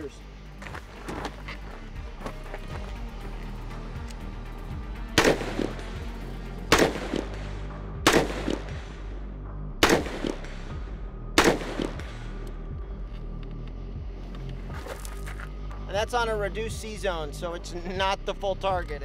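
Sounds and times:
faint echo of gunshot: 5.2 - 5.8, 6.7 - 8.9, 9.8 - 10.7, 11.4 - 12.2
rifle shots: 5.2 - 6.0, 6.7 - 8.8, 9.8 - 10.6, 11.4 - 12.2.

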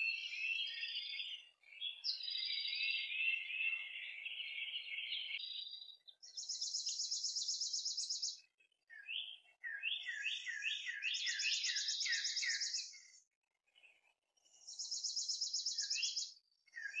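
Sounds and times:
bird downslurred whistled notes: 8.9 - 13.1, 14.8 - 17.0.

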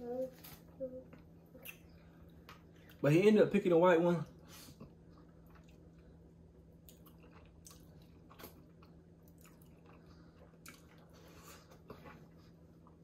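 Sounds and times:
chewing meat: 4.8 - 13.0.

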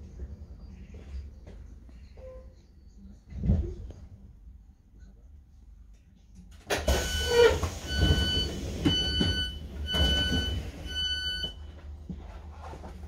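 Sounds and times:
high warning beeps: 6.9 - 11.6.

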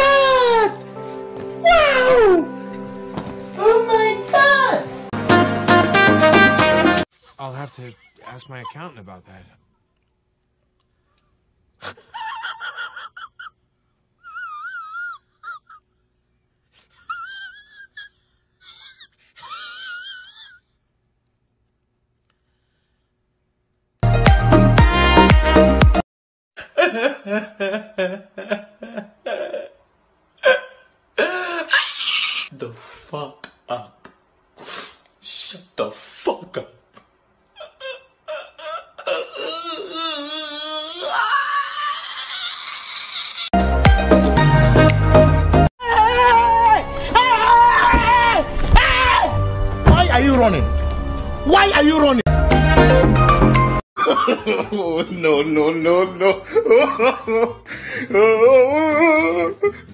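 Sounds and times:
high-pitched crying wail: 0.0 - 0.8, 14.2 - 15.8, 31.7 - 32.5, 37.6 - 43.6, 45.8 - 49.4, 58.1 - 59.9
man sobbing and wailing: 0.0 - 0.8, 1.6 - 2.5, 11.8 - 13.6, 14.2 - 15.8, 16.8 - 20.7, 26.6 - 32.5, 37.5 - 43.5, 45.8 - 48.4, 54.0 - 59.9.

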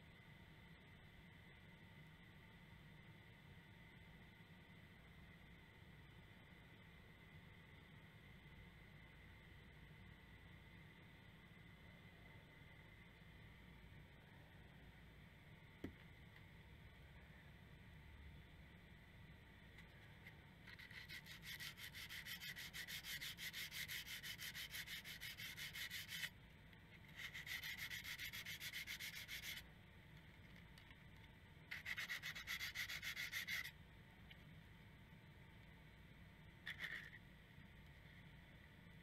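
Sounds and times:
sandpaper scratching on steel blade: 20.7 - 26.3, 27.1 - 29.6, 31.7 - 33.7.

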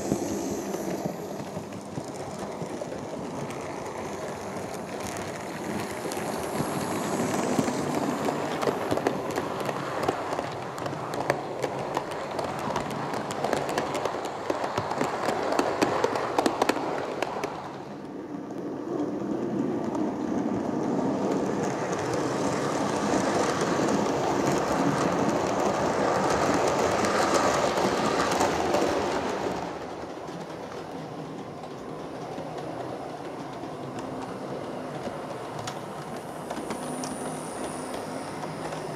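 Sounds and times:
model train running: 0.0 - 38.9.

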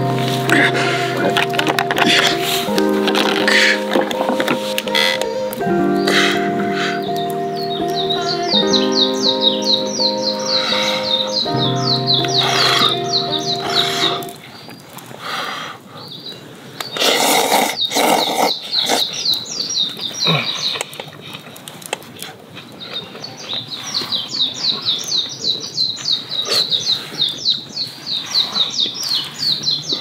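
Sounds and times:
songbirds chirping: 0.0 - 15.2, 16.0 - 21.8, 22.6 - 30.0.

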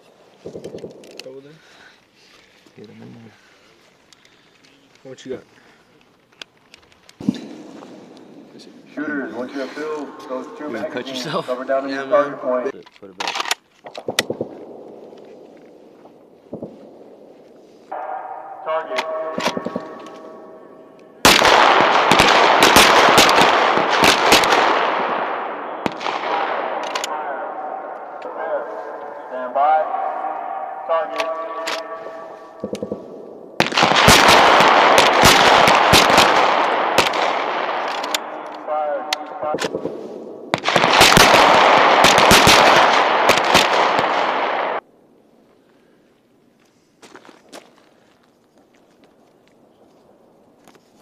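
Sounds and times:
gunshot echo: 7.2 - 10.7, 13.9 - 17.3, 17.9 - 44.8
pistols firing: 13.8 - 17.3, 17.9 - 29.5, 30.2 - 44.8.

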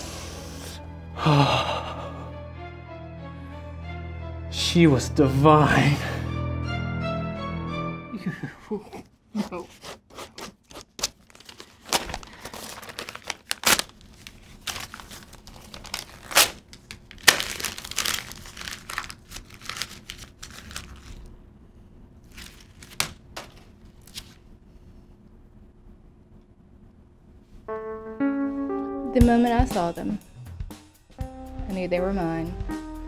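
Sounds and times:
paper crumpling and tearing: 9.6 - 21.3, 22.2 - 24.4
faint steady hum: 11.2 - 30.1.

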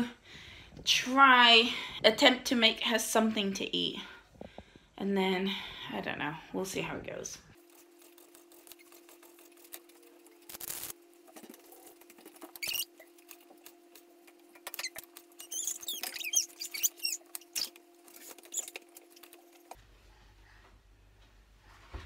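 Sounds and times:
high squeaky sounds: 12.6 - 13.1, 14.6 - 19.2.

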